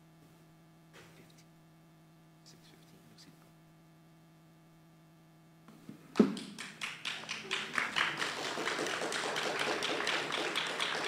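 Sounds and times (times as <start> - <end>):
crowd applauding: 6.1 - 11.0.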